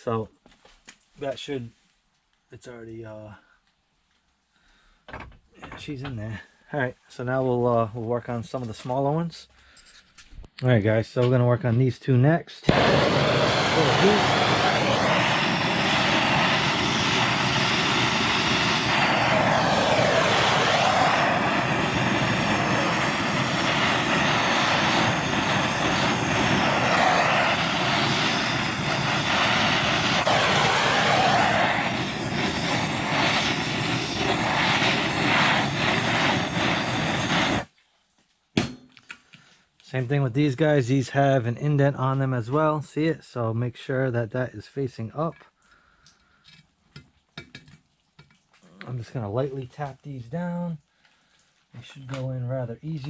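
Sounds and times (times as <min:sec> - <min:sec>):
gas torch hissing: 0:12.6 - 0:37.7.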